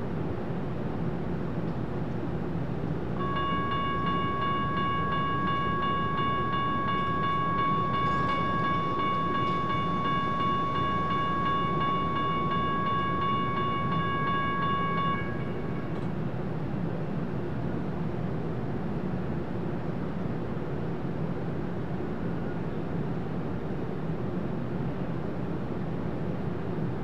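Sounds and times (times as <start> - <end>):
rail traffic rumble: 0.0 - 27.0
level crossing bell ringing: 3.2 - 16.0.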